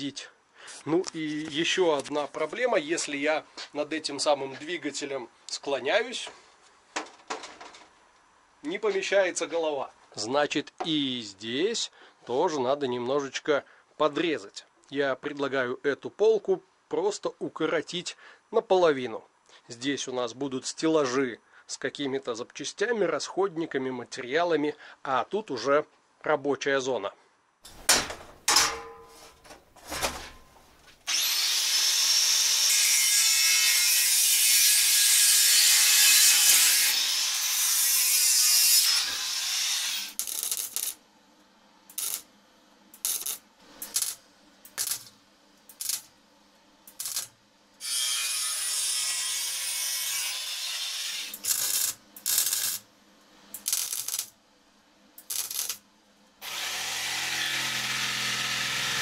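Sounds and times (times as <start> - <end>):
electric jigsaw cutting: 31.1 - 32.9, 56.4 - 59.0
angle grinder cutting steel: 31.1 - 41.0, 41.9 - 42.3, 46.9 - 52.8, 53.5 - 54.3, 55.2 - 55.8, 56.4 - 59.0
arc welding: 31.1 - 41.0, 41.9 - 42.3, 42.9 - 46.1, 46.8 - 52.9, 53.5 - 54.4, 55.2 - 55.8.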